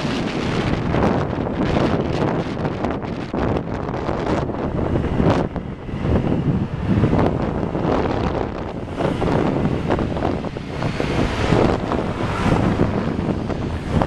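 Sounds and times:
road traffic: 0:00.0 - 0:14.0
wind buffeting microphone: 0:00.0 - 0:14.0.

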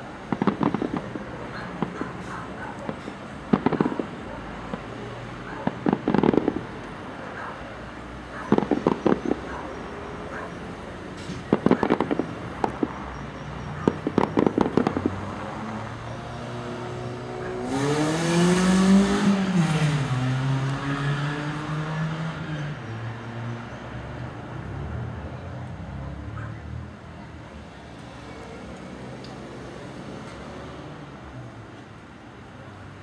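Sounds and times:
fireworks crackling and popping: 0:00.0 - 0:07.1, 0:08.4 - 0:09.6, 0:11.1 - 0:16.1
car passing by: 0:03.6 - 0:27.2.

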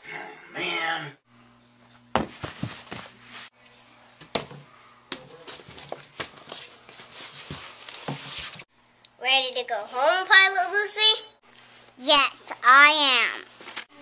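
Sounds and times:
handling knocks and thumps: 0:02.1 - 0:03.2, 0:04.2 - 0:08.6.

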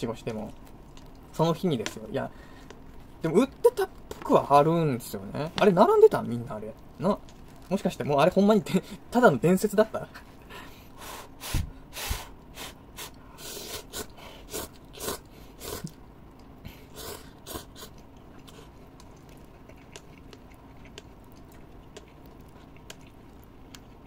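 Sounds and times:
person eating noodles: 0:10.4 - 0:24.0.

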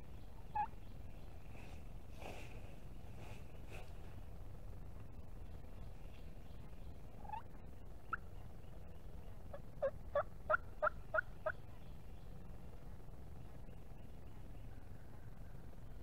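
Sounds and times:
low background rumble: 0:00.0 - 0:16.0
wild turkey yelping: 0:00.5 - 0:00.8, 0:07.2 - 0:08.2, 0:09.5 - 0:11.6.

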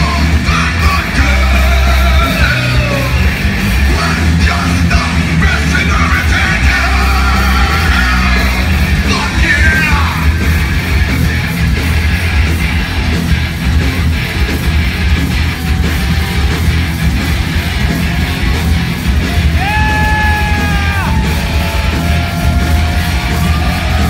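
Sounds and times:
heavy metal band playing: 0:00.0 - 0:24.0
singer yelling into microphone: 0:03.9 - 0:10.4, 0:19.5 - 0:24.0.

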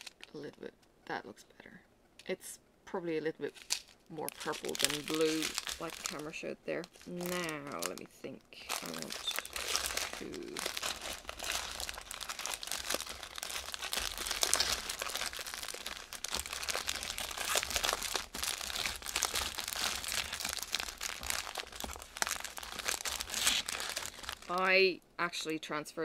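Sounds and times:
plastic bags crinkling: 0:00.0 - 0:00.4, 0:03.4 - 0:24.8.

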